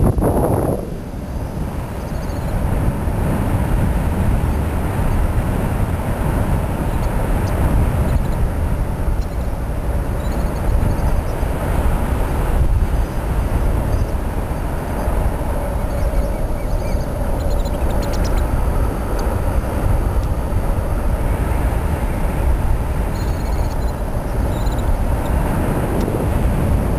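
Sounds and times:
wind buffeting microphone: 0.0 - 26.9.

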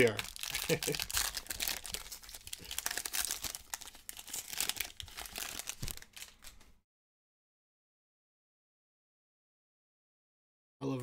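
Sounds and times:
foil wrapper crinkling and tearing: 0.0 - 6.7.

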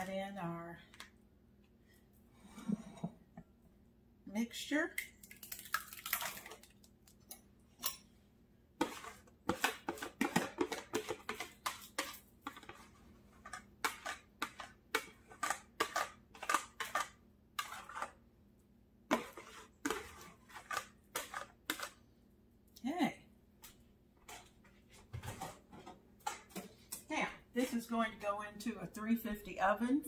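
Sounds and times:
batter scraped from plastic bowl: 8.8 - 18.2, 19.1 - 22.0.

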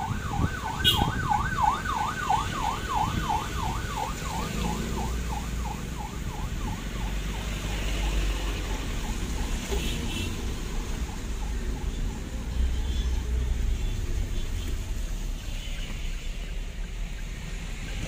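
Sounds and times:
ambulance siren yelping: 0.0 - 9.8
rumble of vehicle engines: 0.0 - 18.0.

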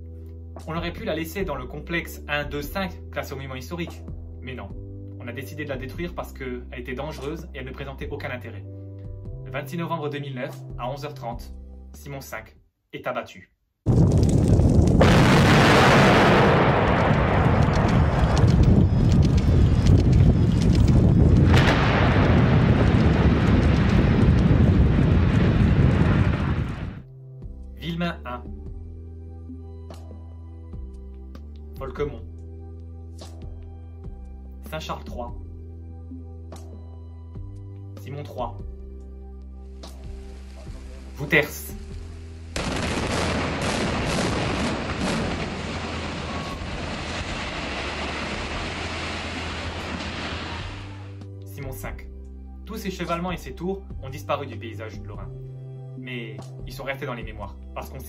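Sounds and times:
sharp explosive blasts: 13.9 - 27.0, 42.6 - 51.2
structure crashing down: 13.9 - 27.0, 42.6 - 51.2
tower collapsing with heavy rumble: 13.9 - 27.0, 42.6 - 51.0.

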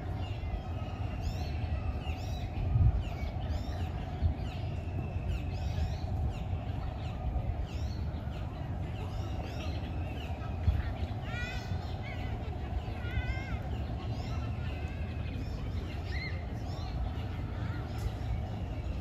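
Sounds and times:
birds chirping and whistling: 0.2 - 10.7.

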